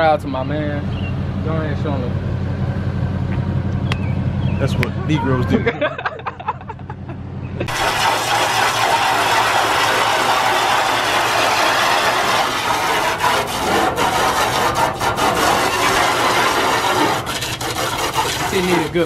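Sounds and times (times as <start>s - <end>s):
vehicle engine idling: 0.0s - 7.7s
hose spraying water on metal: 7.7s - 19.0s.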